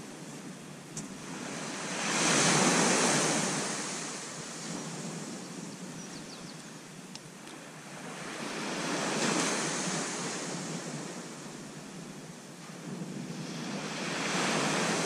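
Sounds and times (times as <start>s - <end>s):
wind buffeting microphone: 0.0s - 15.0s
surf washing onto beach: 1.1s - 5.4s, 8.0s - 11.8s, 12.6s - 15.0s.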